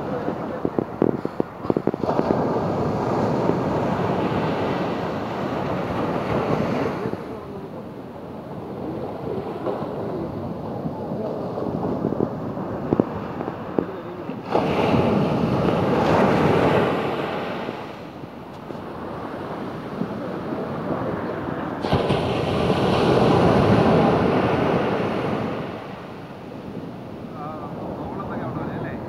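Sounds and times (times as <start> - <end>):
waves crashing on beach: 0.0 - 29.0.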